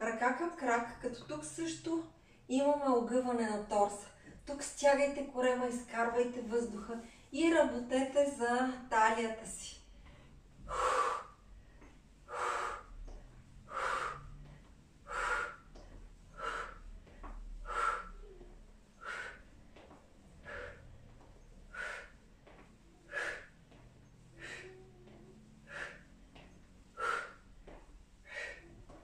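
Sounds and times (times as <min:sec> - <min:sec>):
woman's forceful exhalations: 0:24.4 - 0:24.9, 0:25.6 - 0:26.1, 0:28.2 - 0:28.7.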